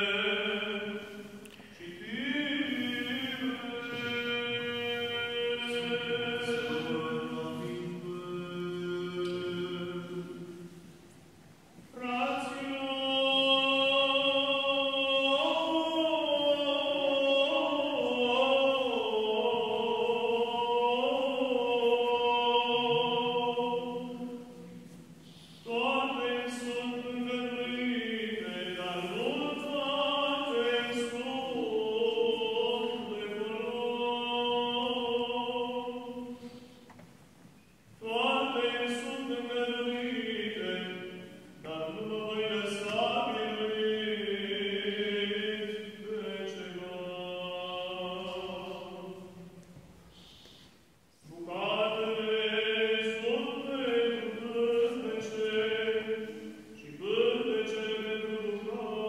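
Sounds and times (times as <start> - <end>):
man chanting unaccompanied: 1.8 - 10.5, 11.9 - 24.8, 25.6 - 36.5, 38.0 - 49.4, 51.2 - 59.0.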